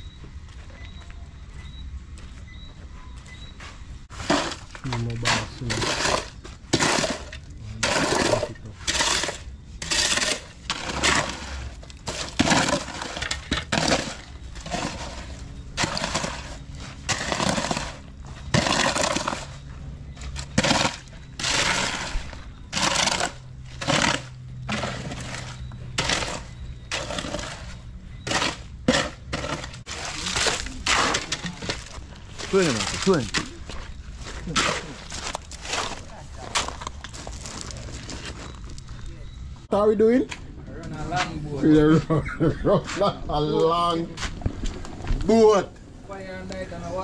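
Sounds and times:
shovels scraping concrete mix: 4.1s - 39.4s.

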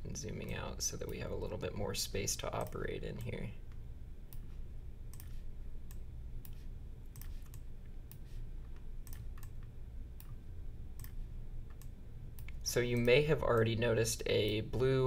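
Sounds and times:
low steady hum: 0.0s - 15.0s
computer mouse clicking: 2.6s - 10.4s, 11.0s - 13.7s.

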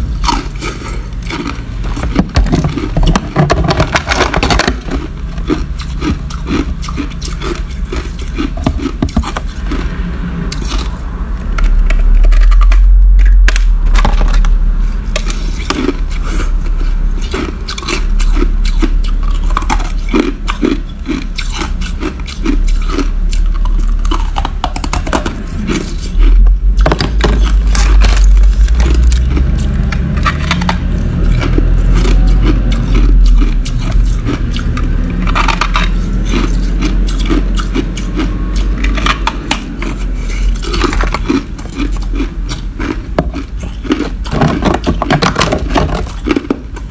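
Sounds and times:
crushed ice being chewed: 0.0s - 46.9s
deep low rumble: 0.0s - 46.9s.

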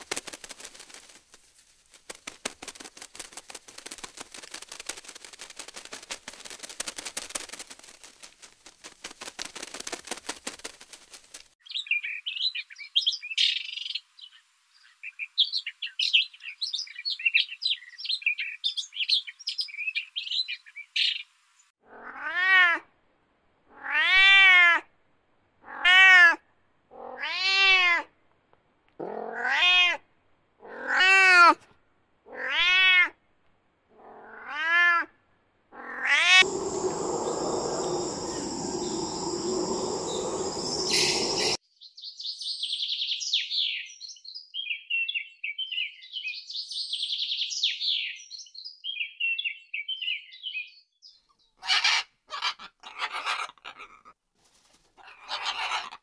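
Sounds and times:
kitten meowing: 29.3s - 30.0s
steady hiss with high tone: 36.4s - 41.6s
small bird chirping: 36.4s - 51.8s.

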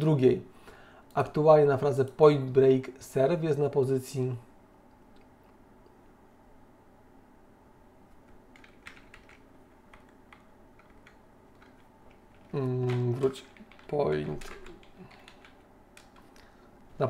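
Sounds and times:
keyboard typing: 8.2s - 16.4s.

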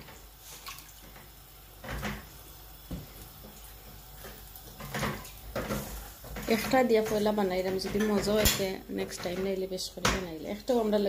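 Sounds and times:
water boiling in a pan: 0.0s - 11.0s.

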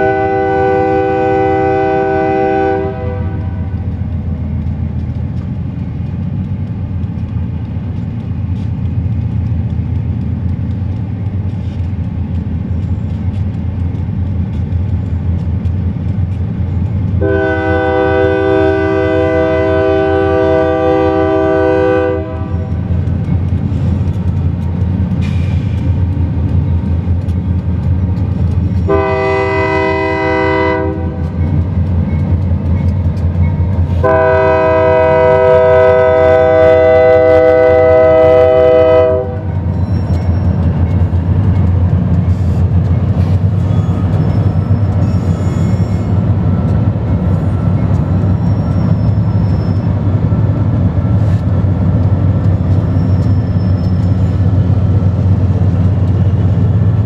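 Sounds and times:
train air horn blasts: 0.0s - 3.8s, 17.2s - 22.9s, 28.8s - 31.3s, 33.9s - 39.6s
locomotive engine rumble: 0.0s - 57.0s.

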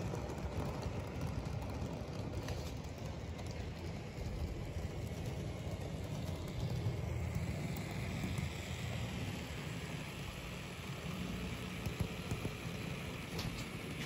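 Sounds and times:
model train rumbling on track: 0.0s - 14.0s.

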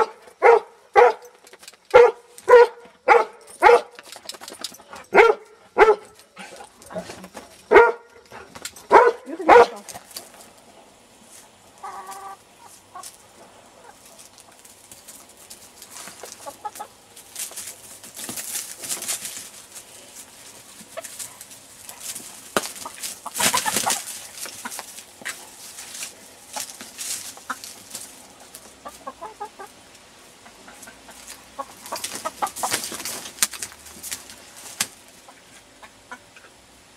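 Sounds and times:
branches rustling against microphone: 6.1s - 35.5s
hens clucking: 8.4s - 36.8s.

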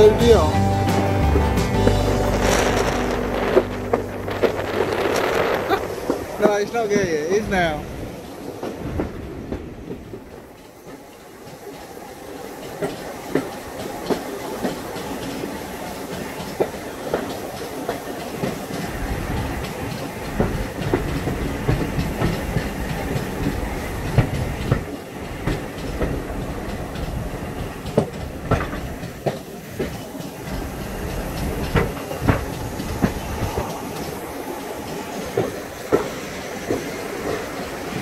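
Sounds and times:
train wheels rumbling on rail: 0.0s - 38.0s
clicks and clunks from rail joints: 8.0s - 38.0s.

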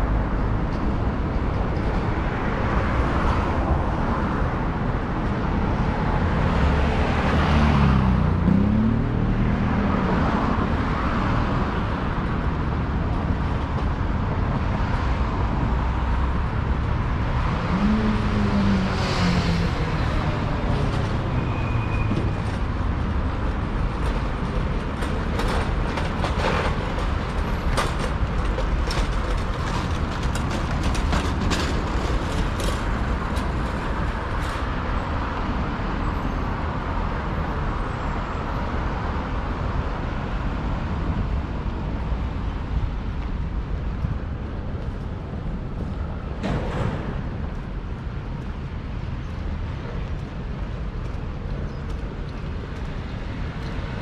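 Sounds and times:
road traffic: 0.0s - 54.0s.

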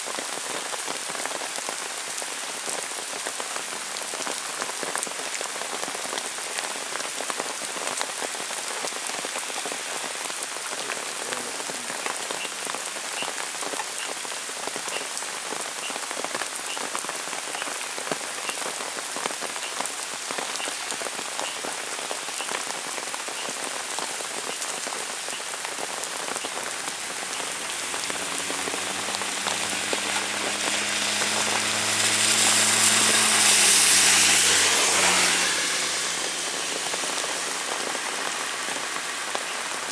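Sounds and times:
heavy rain pattering: 0.0s - 39.9s
tyres hissing on wet road: 0.0s - 39.9s
vehicle engine: 26.7s - 39.2s.

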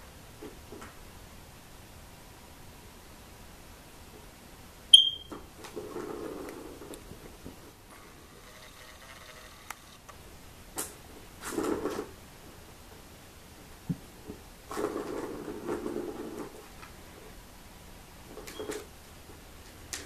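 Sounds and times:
ball rolling around plastic track: 5.6s - 9.9s, 14.7s - 16.9s.

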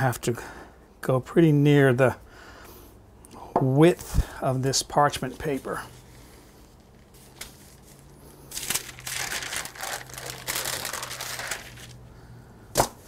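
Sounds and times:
parchment paper rustling: 5.0s - 12.0s.

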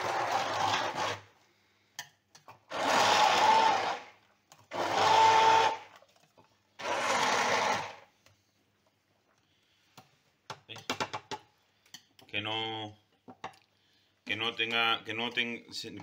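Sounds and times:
electric hand blender whining: 0.0s - 1.2s, 2.7s - 5.9s, 6.8s - 8.1s.

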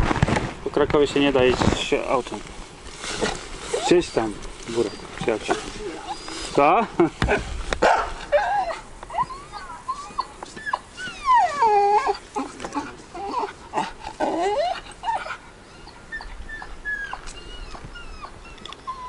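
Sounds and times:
dog whining: 3.2s - 6.9s, 7.9s - 19.0s.

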